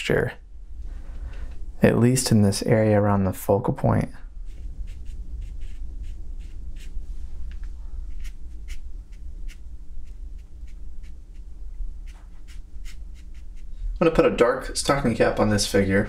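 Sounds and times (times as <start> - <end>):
low steady hum: 0.0 - 16.0
brush strokes on paper: 4.4 - 13.8.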